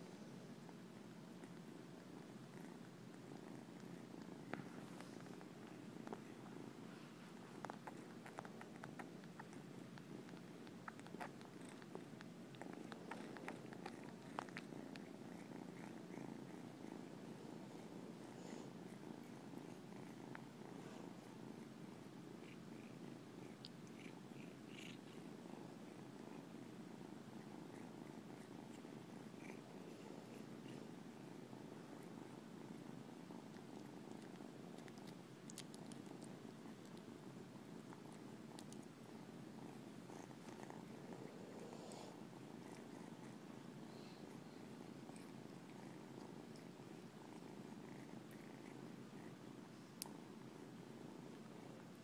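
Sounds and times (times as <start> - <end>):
kitten purring: 0.0 - 52.0
kitten sucking clicks: 34.3 - 36.1.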